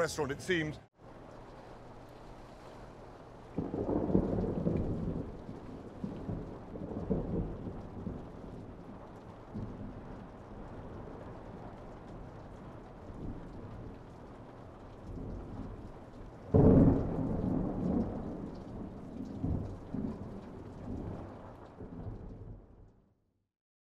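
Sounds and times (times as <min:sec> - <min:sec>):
steady rain: 0:00.0 - 0:23.1
thunder clap and rumbles: 0:03.6 - 0:14.3, 0:15.0 - 0:22.7.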